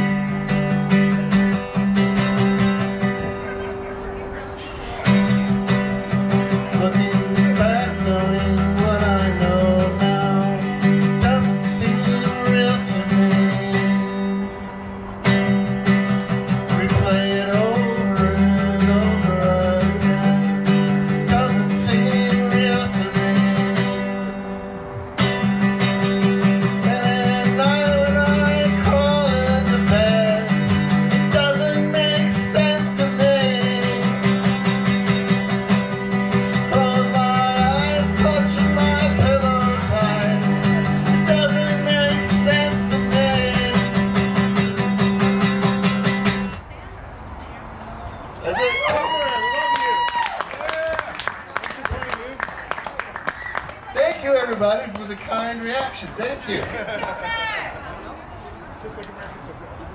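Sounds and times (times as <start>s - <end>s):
strummed guitar: 0.0s - 46.7s
man singing: 6.3s - 14.5s, 16.5s - 24.6s, 26.3s - 35.4s, 36.3s - 45.6s.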